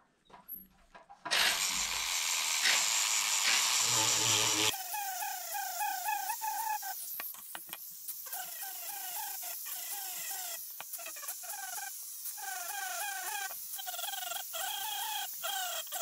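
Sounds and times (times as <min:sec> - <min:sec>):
rotary tool whining: 0:01.3 - 0:07.3.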